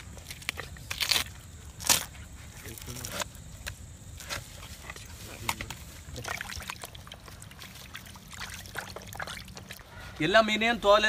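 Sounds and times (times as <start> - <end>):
water sloshing and splashing: 4.2 - 9.9.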